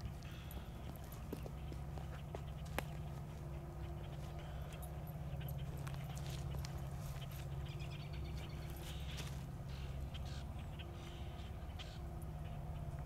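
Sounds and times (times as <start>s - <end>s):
engine rumbling: 0.0s - 13.0s.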